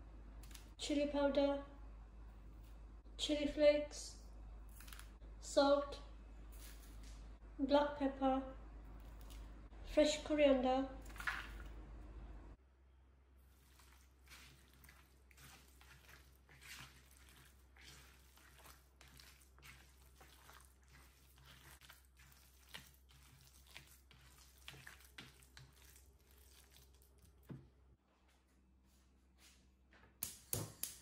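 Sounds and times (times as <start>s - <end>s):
hands kneading wet mince: 11.0s - 12.0s, 13.4s - 27.9s.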